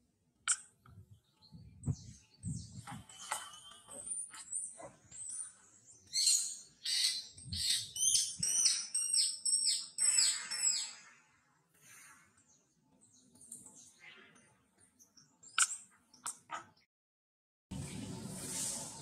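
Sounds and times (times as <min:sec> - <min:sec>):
bird whistling: 0:06.1 - 0:11.0.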